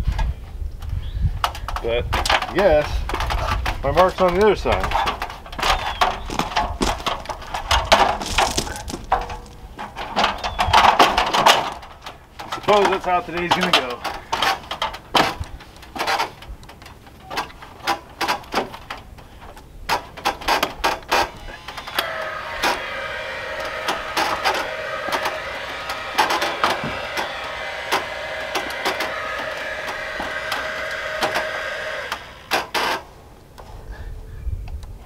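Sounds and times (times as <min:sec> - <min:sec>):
mechanical whine: 0:21.2 - 0:33.1.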